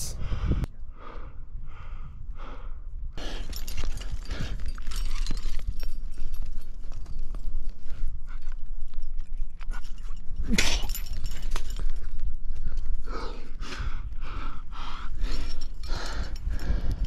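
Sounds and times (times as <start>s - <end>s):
person breathing hard: 0.0s - 5.1s, 11.8s - 17.0s.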